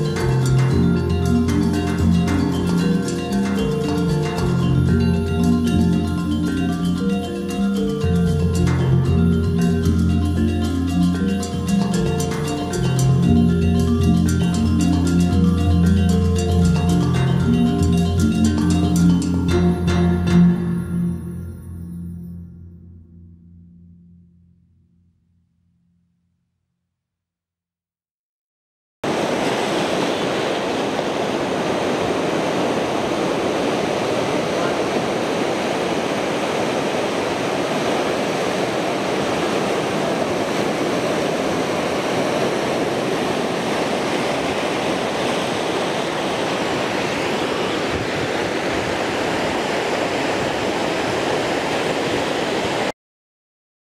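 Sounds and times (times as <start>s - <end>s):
steady rushing noise: 29.1s - 52.9s.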